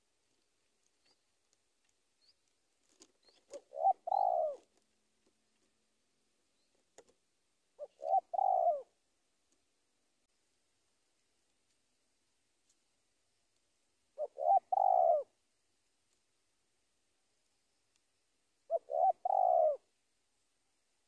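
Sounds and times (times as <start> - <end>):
dove cooing: 3.2 - 4.8, 7.8 - 9.0, 14.2 - 15.4, 18.7 - 19.9.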